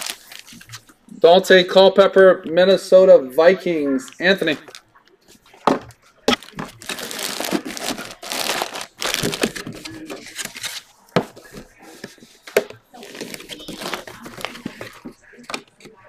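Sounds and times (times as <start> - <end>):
plastic bag crinkling: 0.0 - 0.9, 4.0 - 15.5.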